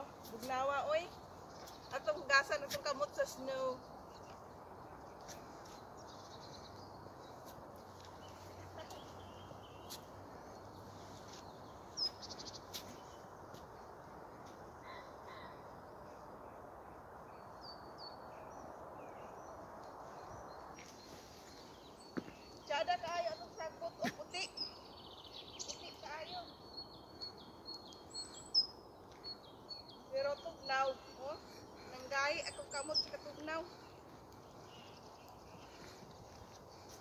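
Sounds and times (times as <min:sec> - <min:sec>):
distant bird chirps: 0:00.0 - 0:37.0.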